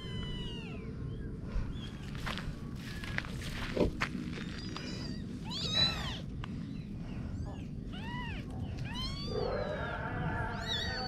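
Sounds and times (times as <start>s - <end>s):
kitten meowing: 0.0s - 0.8s, 4.6s - 6.2s, 7.9s - 9.5s, 10.5s - 11.0s.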